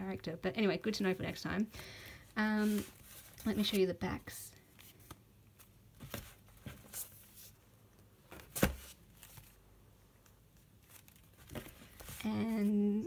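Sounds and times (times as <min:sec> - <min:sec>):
paper pages rustling: 0:02.6 - 0:03.8, 0:10.2 - 0:12.6.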